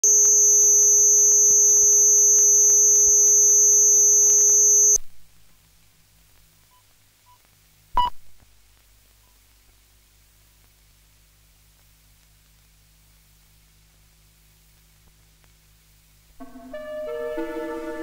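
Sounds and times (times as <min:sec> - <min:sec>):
loud test tone: 0:00.0 - 0:05.0
short beep: 0:00.0 - 0:05.0
faint hum: 0:00.0 - 0:18.0.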